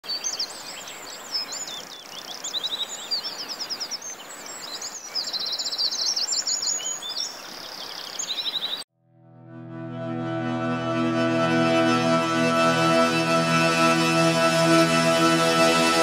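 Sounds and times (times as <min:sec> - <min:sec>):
birds chirping and singing: 0:00.1 - 0:08.8.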